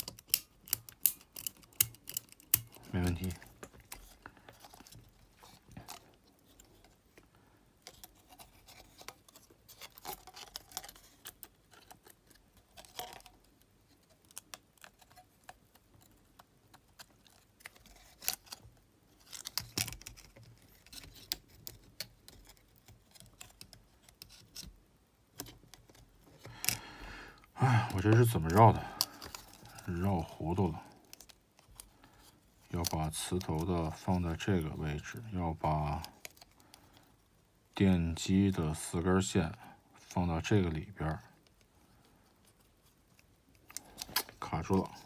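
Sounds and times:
small parts clicking and scraping: 0:00.0 - 0:07.2, 0:07.8 - 0:37.3.

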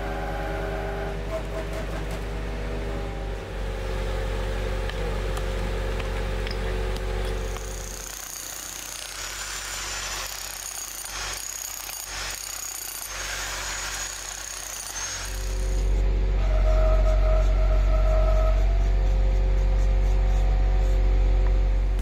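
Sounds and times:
truck engine hum: 0:00.0 - 0:08.0, 0:15.4 - 0:22.0
jackhammer breaking concrete: 0:07.4 - 0:15.8.

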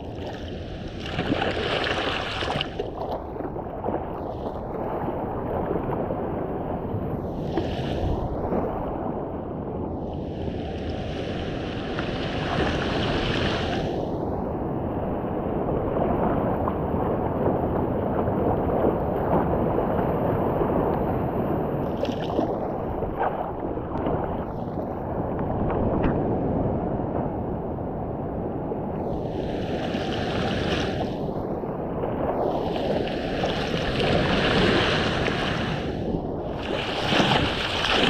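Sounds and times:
sea water lapping and sloshing: 0:00.0 - 0:09.3, 0:10.0 - 0:14.2, 0:15.6 - 0:25.8, 0:29.0 - 0:38.0
wind buffeting microphone: 0:00.0 - 0:38.0
small surf breaking: 0:29.1 - 0:31.3, 0:32.2 - 0:38.0.

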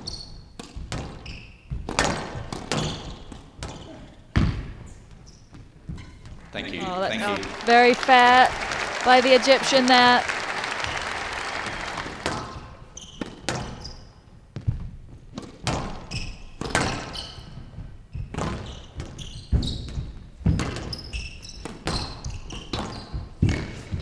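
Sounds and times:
shoes squeaking on court: 0:00.0 - 0:06.9, 0:12.5 - 0:24.0
squash ball smacking: 0:00.6 - 0:04.7, 0:14.6 - 0:17.2, 0:19.9 - 0:21.0
applause: 0:06.8 - 0:12.6.

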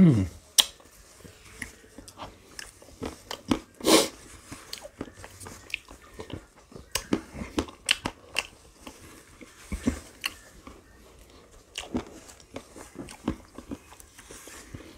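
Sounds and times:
person crunching ice cream: 0:00.4 - 0:14.9.

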